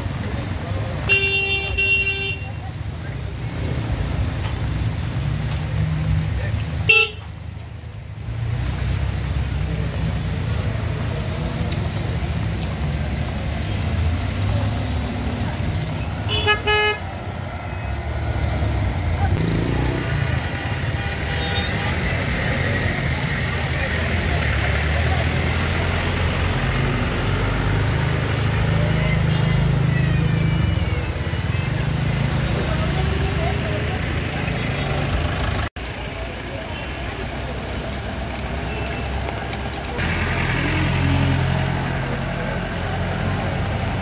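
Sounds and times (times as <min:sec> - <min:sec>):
rain: 0:00.0 - 0:44.0
tyres hissing on wet road: 0:00.0 - 0:44.0
car engines running low: 0:21.8 - 0:44.0.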